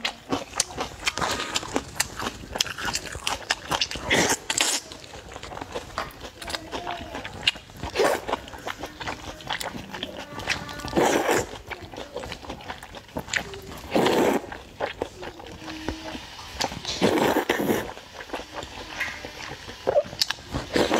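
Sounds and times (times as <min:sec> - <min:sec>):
person slurping noodles: 0:00.1 - 0:06.0, 0:06.7 - 0:20.9
wet mouth clicks and smacks: 0:19.9 - 0:20.4.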